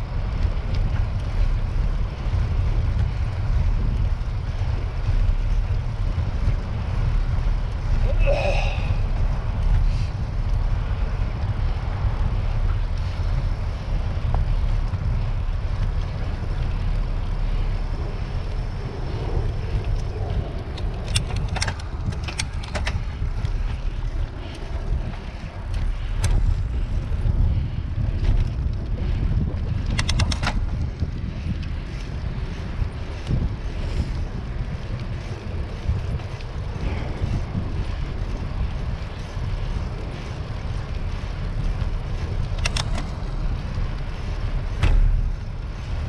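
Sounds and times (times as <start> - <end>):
wind buffeting microphone: 0.0 - 46.0
sharp clicks: 29.8 - 30.6, 42.5 - 43.1.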